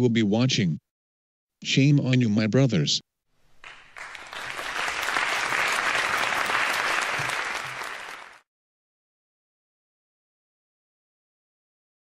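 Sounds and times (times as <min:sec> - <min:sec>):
audience applause: 0:03.5 - 0:08.4.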